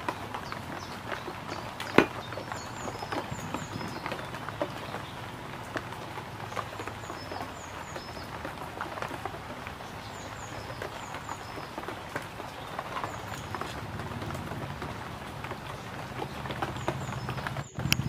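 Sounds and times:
cleaver tapping and scraping wood: 0:00.0 - 0:05.1
small birds chirping: 0:00.0 - 0:18.0
cleaver knocking into wood: 0:01.9 - 0:02.2.

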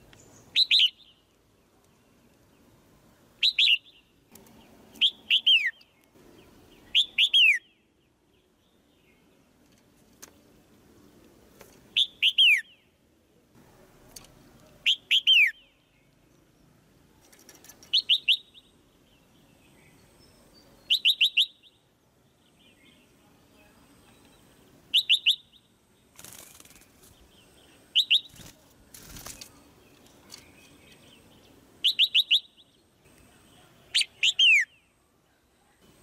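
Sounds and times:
bird chirping: 0:00.0 - 0:09.8, 0:11.9 - 0:13.0, 0:14.2 - 0:28.6, 0:29.2 - 0:36.0
brief rustle: 0:17.2 - 0:18.0, 0:28.3 - 0:31.1.

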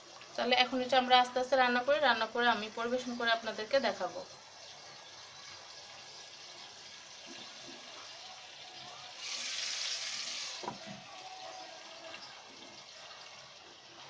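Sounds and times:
chicken sizzling in oil: 0:00.0 - 0:14.0.

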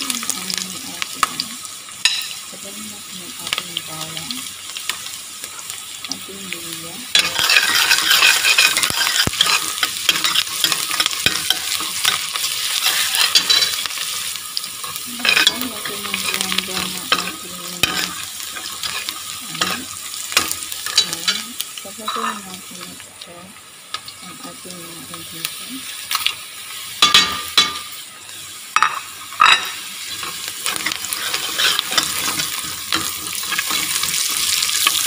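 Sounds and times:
onion sizzling in hot oil: 0:00.0 - 0:35.0
spoon scraping a metal pot: 0:07.1 - 0:13.9, 0:28.8 - 0:35.0.

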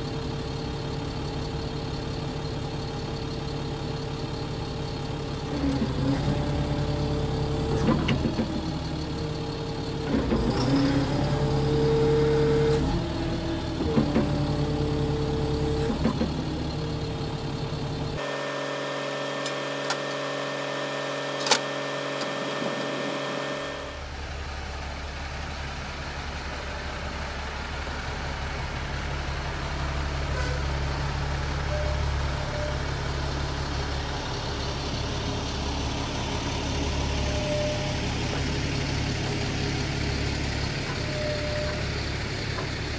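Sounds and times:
diesel engine running: 0:00.0 - 0:42.9
pitched whine: 0:18.2 - 0:24.1.

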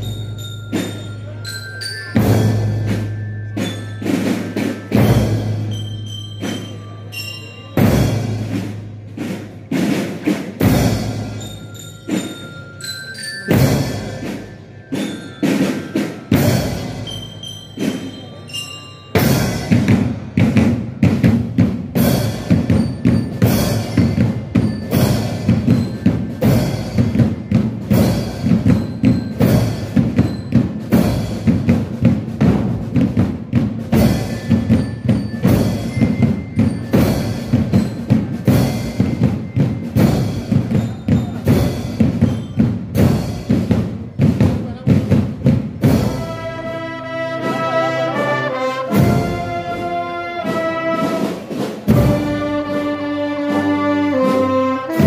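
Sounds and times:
marching band playing: 0:00.0 - 0:55.0
cymbal strikes: 0:02.2 - 0:12.4, 0:13.5 - 0:31.8.

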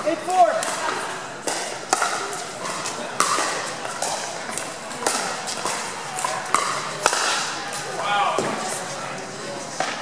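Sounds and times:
paddles striking pickleball: 0:00.5 - 0:07.8.

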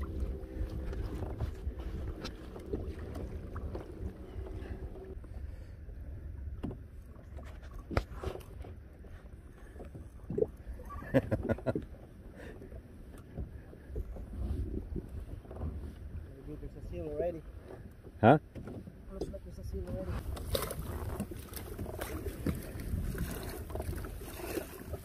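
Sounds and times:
wind buffeting microphone: 0:00.0 - 0:05.2, 0:13.3 - 0:17.0, 0:19.3 - 0:25.0
sea chop around kayak: 0:00.0 - 0:25.0.

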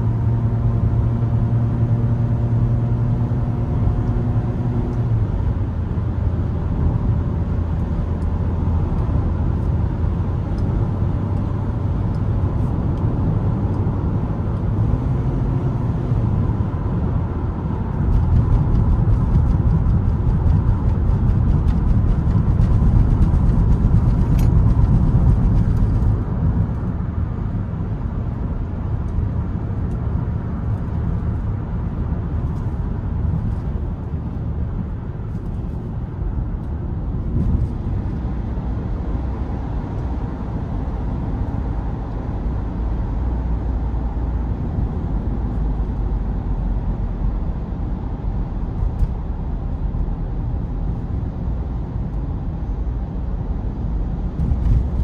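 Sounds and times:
car engine humming: 0:00.0 - 0:41.8
road and tyre rumble: 0:00.0 - 0:55.0.

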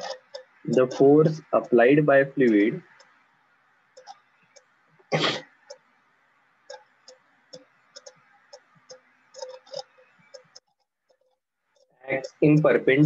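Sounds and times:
person coughing: 0:05.1 - 0:05.5
stylus tapping on tablet: 0:06.6 - 0:12.7.

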